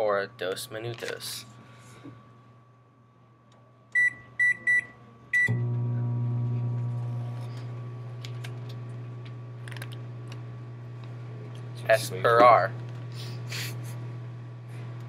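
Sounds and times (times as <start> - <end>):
microwave keypad beeps: 4.0 - 5.6.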